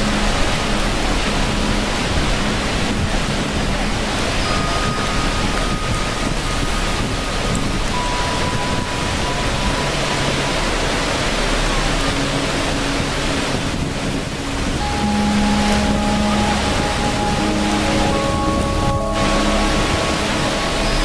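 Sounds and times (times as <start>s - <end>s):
rushing water noise: 0.0s - 21.0s
soft held music notes: 0.0s - 21.0s.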